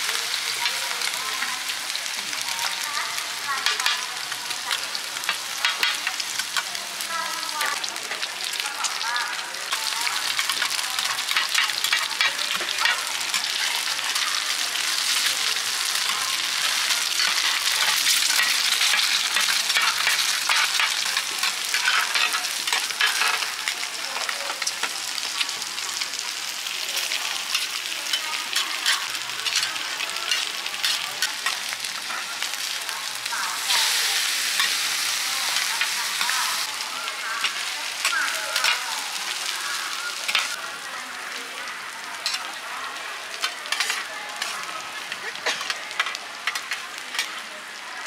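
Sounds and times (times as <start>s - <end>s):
omelette sizzling in oil: 0.0s - 47.9s
metal spatulas scraping pan: 15.8s - 23.6s, 43.4s - 47.3s.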